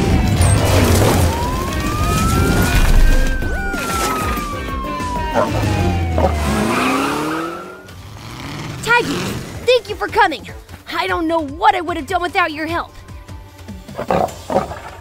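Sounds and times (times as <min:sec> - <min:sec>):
cartoon police siren wailing: 0:00.0 - 0:07.9
rising sweep: 0:00.6 - 0:07.9
background music with low beat: 0:01.0 - 0:06.7.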